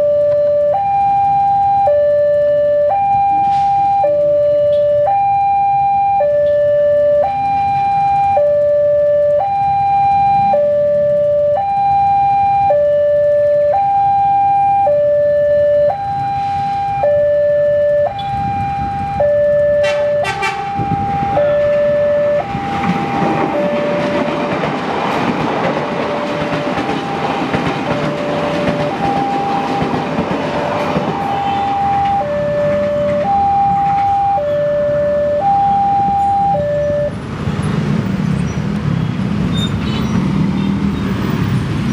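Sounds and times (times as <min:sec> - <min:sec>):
two-tone crossing alarm: 0:00.0 - 0:37.2
train rumbling: 0:16.4 - 0:41.9.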